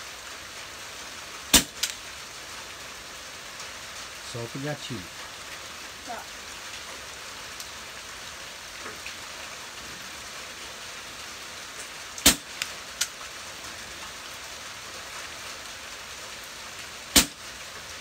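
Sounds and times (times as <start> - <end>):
steady rain: 0.0 - 18.0
air rifle shot: 1.5 - 1.9, 17.2 - 17.4.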